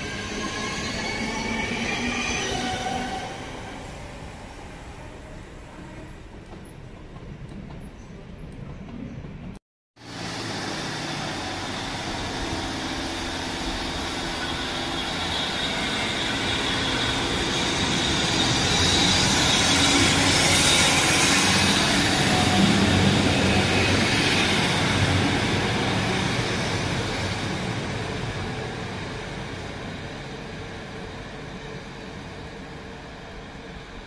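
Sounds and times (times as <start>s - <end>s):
diesel train passing: 0.0s - 34.0s
high wheel squeal: 10.2s - 24.7s.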